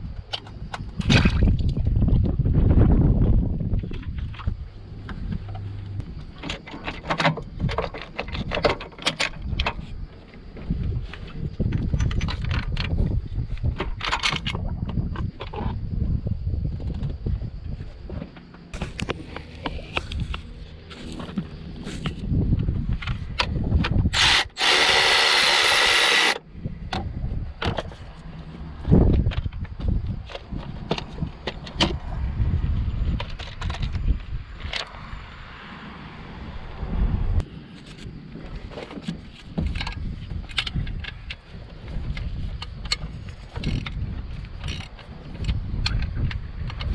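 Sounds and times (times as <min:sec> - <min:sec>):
electric ratchet motor whine: 0:24.1 - 0:26.4
small clicks and knocks of tools: 0:39.0 - 0:41.5, 0:42.1 - 0:46.9.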